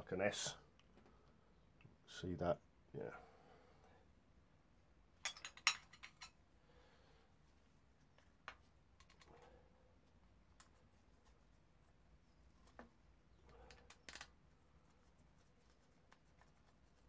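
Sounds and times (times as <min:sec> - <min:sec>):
gloved hands clicking and rustling: 0:08.0 - 0:17.0.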